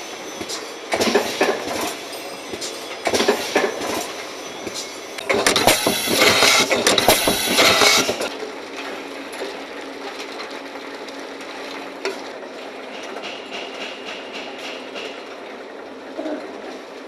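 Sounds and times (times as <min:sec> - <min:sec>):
steady machine hum: 0:00.0 - 0:10.1
aerosol cans clattering in machine: 0:00.4 - 0:08.3.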